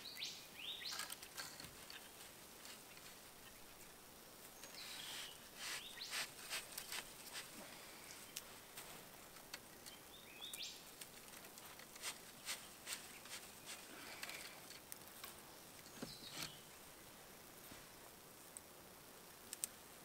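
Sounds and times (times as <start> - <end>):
bird chirps: 0.0 - 1.1, 4.6 - 6.2, 9.9 - 10.8, 15.9 - 16.6
faint ticks and clicks: 6.7 - 16.4, 18.4 - 19.8.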